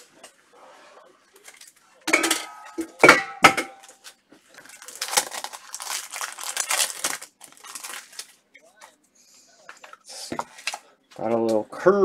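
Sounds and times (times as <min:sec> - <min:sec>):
plastic crinkling: 0:03.8 - 0:08.4.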